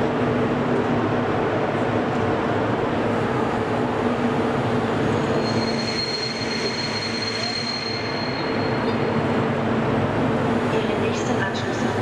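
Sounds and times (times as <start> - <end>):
electric locomotive rumble and hum: 0.0 - 12.0
high thin squeal: 5.1 - 9.1.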